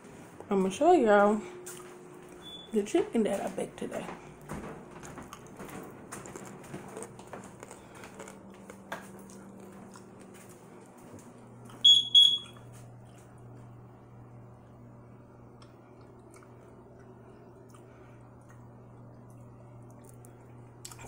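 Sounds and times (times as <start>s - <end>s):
low steady hum: 0.0s - 21.0s
short high electronic beeps: 11.8s - 12.6s.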